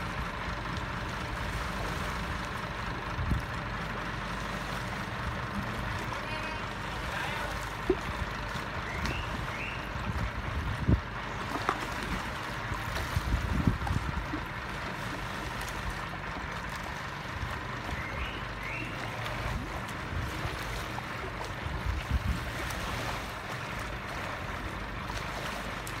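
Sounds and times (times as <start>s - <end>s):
water lapping at boat ramp: 0.0s - 26.0s
wind buffeting microphone: 7.9s - 15.2s, 17.3s - 24.6s.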